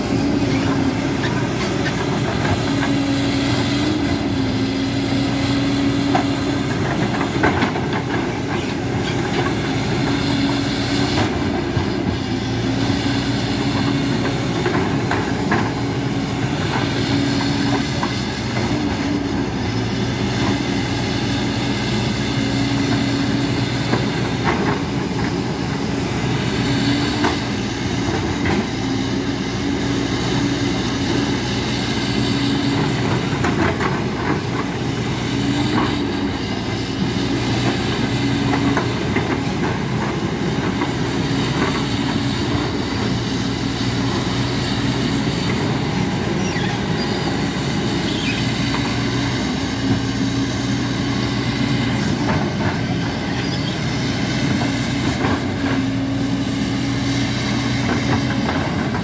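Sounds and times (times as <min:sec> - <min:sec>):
diesel engine running: 0:00.0 - 0:59.0
steel tracks clanking and squeaking: 0:46.2 - 0:49.4, 0:52.0 - 0:53.9.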